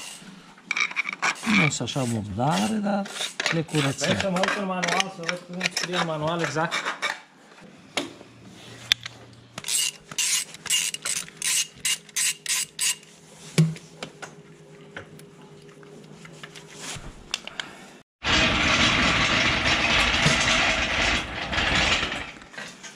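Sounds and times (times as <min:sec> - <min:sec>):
hand tool rasping on metal: 0:00.0 - 0:07.2.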